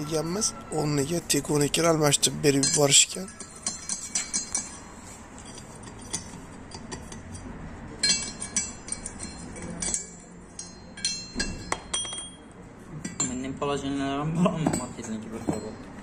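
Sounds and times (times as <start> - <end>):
metallic clinks and taps: 2.6 - 13.4, 14.6 - 16.0.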